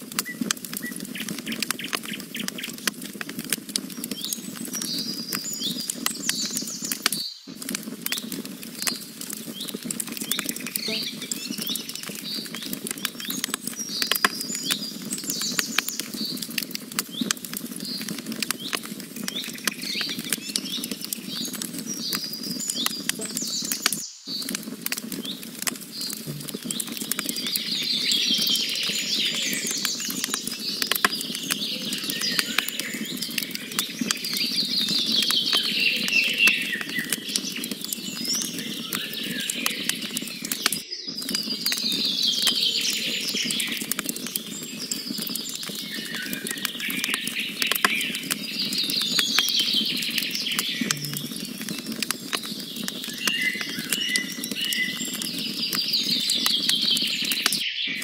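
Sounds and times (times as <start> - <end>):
campfire crackling and popping: 0.0 - 57.7
songbirds chirping: 3.9 - 16.5, 17.1 - 58.0.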